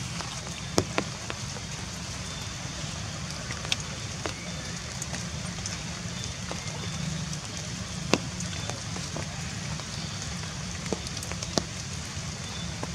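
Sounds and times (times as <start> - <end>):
outdoor background hiss: 0.0 - 12.9.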